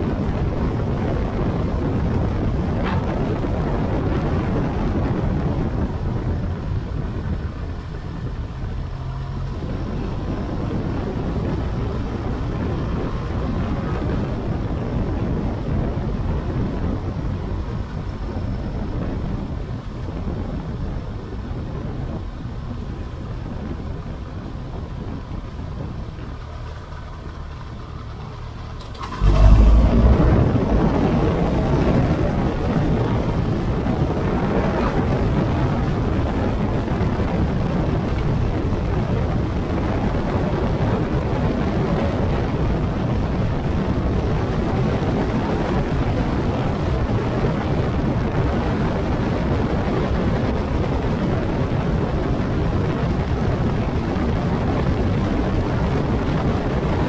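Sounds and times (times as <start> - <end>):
wind noise: 0.0 - 57.0
motorcycle engine: 22.8 - 39.4.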